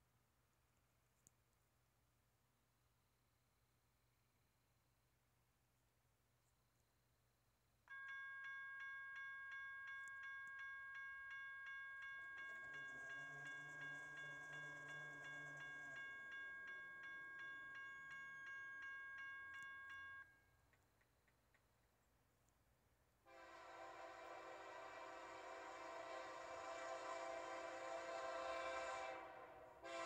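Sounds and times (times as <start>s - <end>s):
crossing warning bell ringing: 7.9s - 20.5s
train horn: 23.3s - 30.0s.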